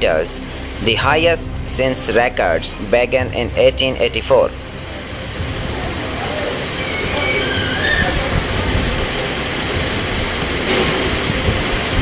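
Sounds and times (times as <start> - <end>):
faint high gliding tones: 0.0 - 10.7
floodwater rushing: 4.5 - 12.0.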